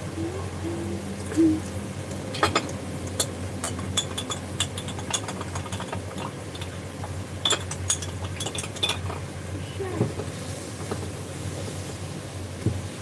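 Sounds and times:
steady low hum: 0.0s - 11.5s
spoon clinking against glass: 2.4s - 6.7s, 7.4s - 9.2s.

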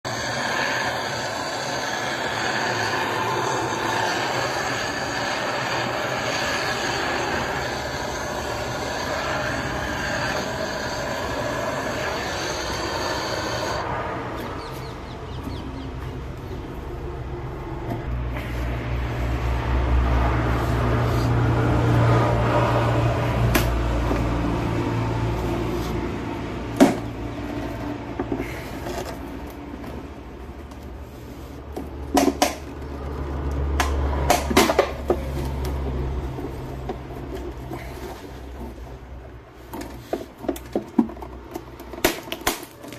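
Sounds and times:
gas torch hissing: 0.0s - 14.4s.

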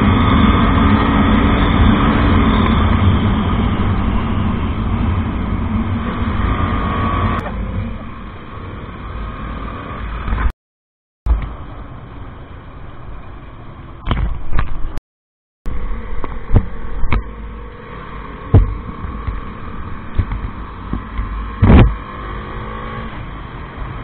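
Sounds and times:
motorcycle engine running: 15.7s - 22.7s.

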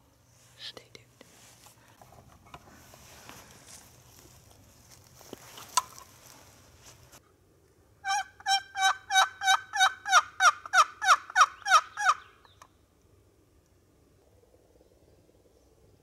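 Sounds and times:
faint rustling: 0.3s - 7.3s
turkey yelping: 8.0s - 12.2s.

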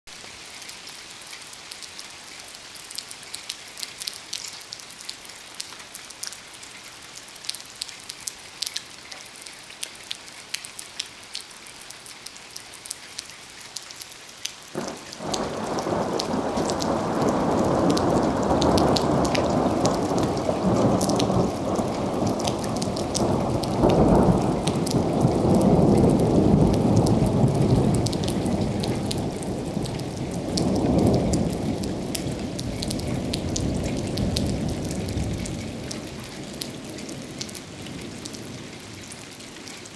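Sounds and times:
rain pattering: 0.1s - 39.9s
thunder rumbling: 14.8s - 38.6s.

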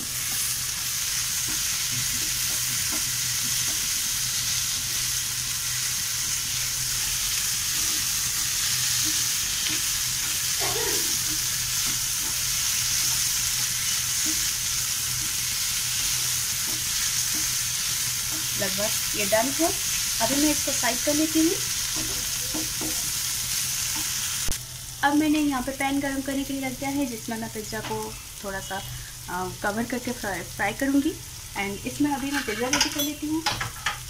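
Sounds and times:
food sizzling in a pan: 0.0s - 34.0s
spatula scraping a pan: 32.1s - 33.1s.

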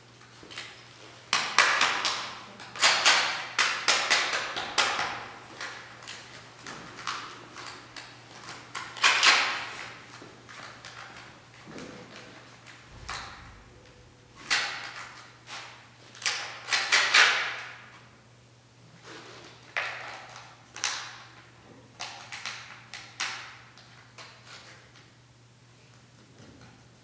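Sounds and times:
faint steady hum: 0.0s - 16.6s.

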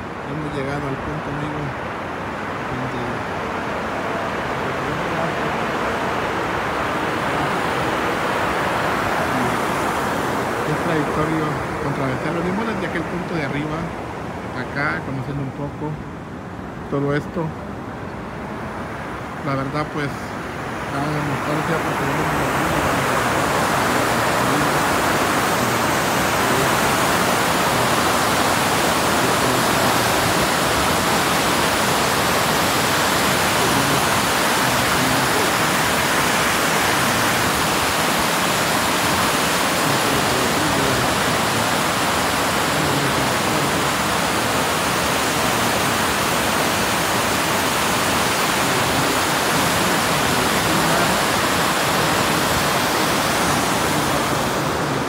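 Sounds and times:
water pouring over dam: 21.0s - 55.0s.

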